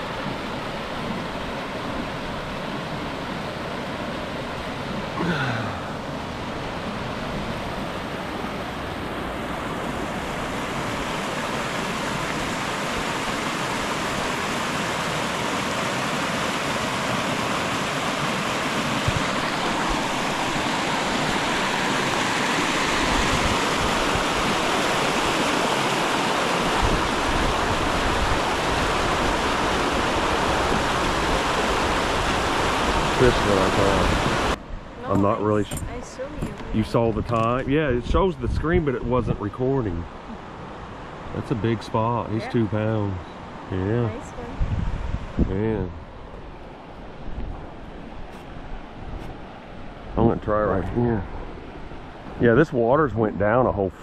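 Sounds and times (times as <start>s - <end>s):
creek water rushing over rocks: 0.0s - 37.1s.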